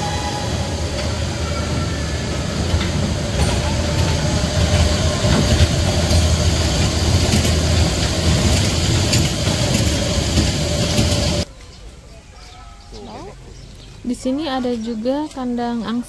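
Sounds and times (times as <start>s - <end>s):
ride train wheels rumbling: 0.0s - 12.1s.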